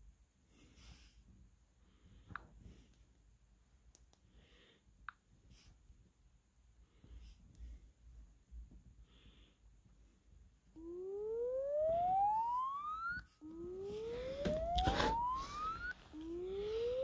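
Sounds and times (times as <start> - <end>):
test tone rising in pitch: 10.8 - 17.0
rubbing from handling phone: 13.8 - 17.0.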